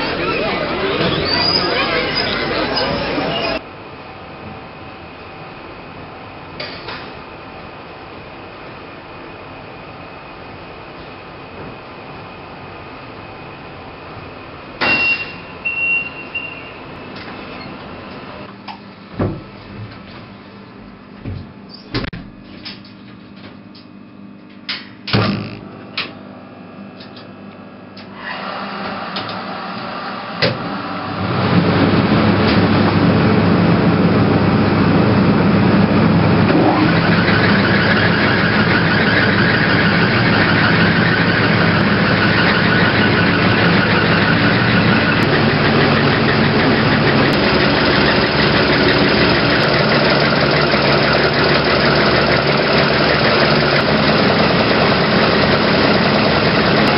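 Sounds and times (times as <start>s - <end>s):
machinery rushing hum: 0.0s - 18.6s, 25.2s - 56.9s
higher machine tone: 30.9s - 56.9s.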